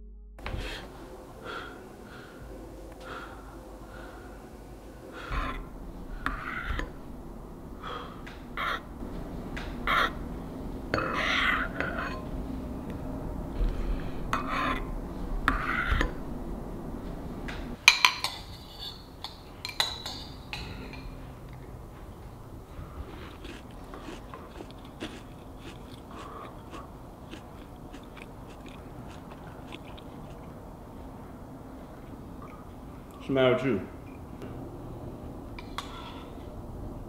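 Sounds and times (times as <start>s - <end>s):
dishes and cutlery clinking: 17.8s - 21.6s.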